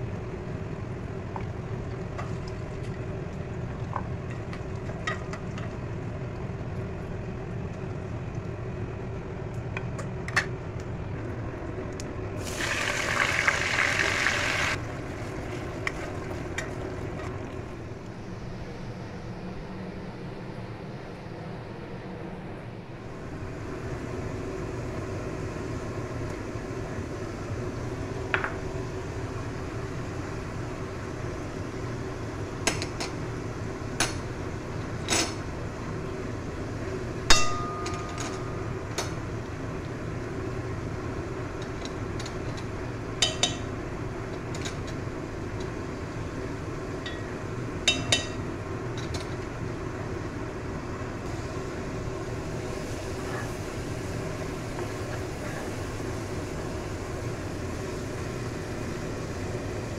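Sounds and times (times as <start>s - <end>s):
steady low hum: 14.7s - 59.9s
utensils clinking on frying pan: 37.3s - 38.7s.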